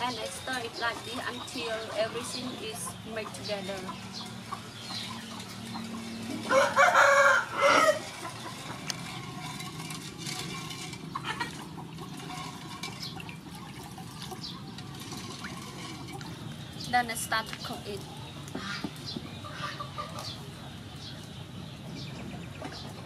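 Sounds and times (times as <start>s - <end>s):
wooden spoon scraping metal pot: 3.4s - 17.8s
rooster crowing: 6.4s - 8.2s.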